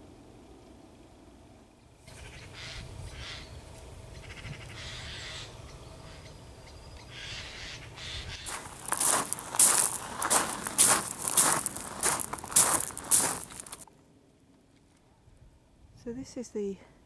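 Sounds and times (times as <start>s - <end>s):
rooks cawing: 4.2s - 6.2s, 7.1s - 13.7s
footsteps: 8.5s - 13.8s.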